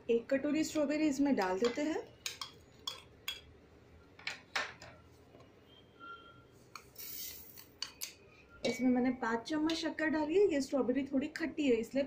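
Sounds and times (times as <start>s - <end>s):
metal spoon clinking and scraping: 0.7s - 3.5s
sugar pouring with hiss: 7.0s - 7.6s.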